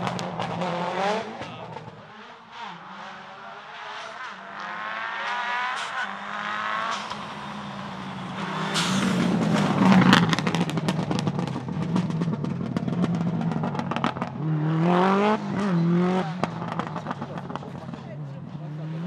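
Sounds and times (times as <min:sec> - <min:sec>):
exhaust pops and crackles: 0:00.0 - 0:02.1, 0:06.8 - 0:18.6
rally car engine passing: 0:00.0 - 0:19.0.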